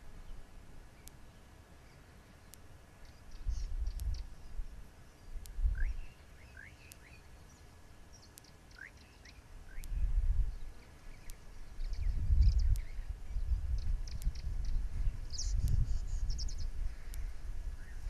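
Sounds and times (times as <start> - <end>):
small birds chirping: 0.0 - 18.0
faint tick: 1.0 - 1.2, 2.5 - 4.6, 5.4 - 7.2, 8.2 - 13.1, 13.7 - 18.0.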